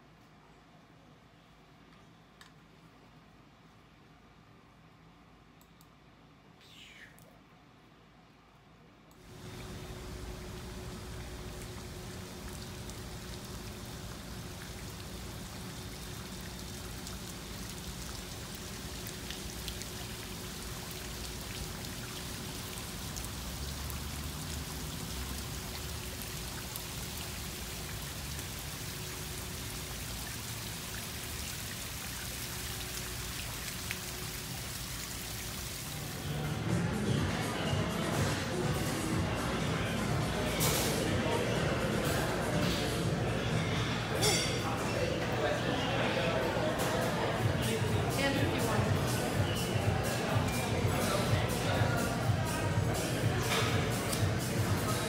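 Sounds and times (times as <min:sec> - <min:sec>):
faint steady hum: 0:00.0 - 0:40.4
fountain water splashing: 0:09.3 - 0:43.6, 0:46.6 - 0:55.0.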